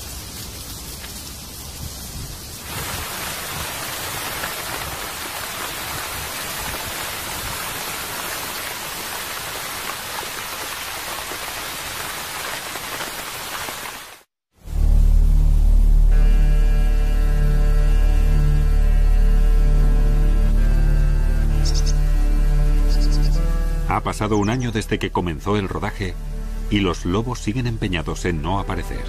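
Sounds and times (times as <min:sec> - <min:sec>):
open-air background: 0:00.0 - 0:29.0
steady rain falling: 0:00.0 - 0:29.0.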